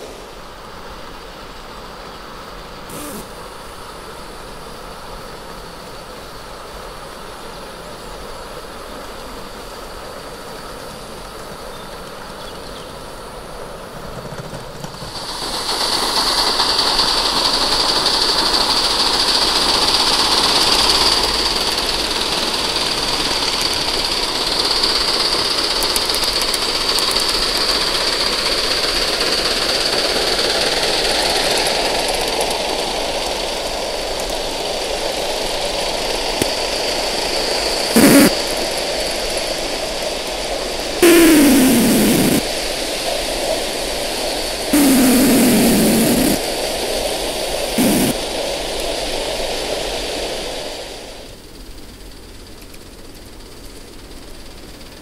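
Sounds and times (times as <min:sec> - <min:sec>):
steam hiss: 0:00.0 - 0:14.2, 0:14.8 - 0:52.5
model steam locomotive running: 0:00.0 - 0:42.1, 0:42.8 - 0:55.0
rushing noise: 0:41.0 - 0:42.4.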